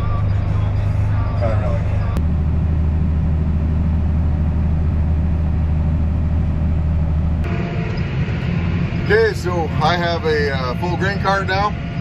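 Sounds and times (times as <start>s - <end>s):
tractor engine drone: 0.0s - 12.0s.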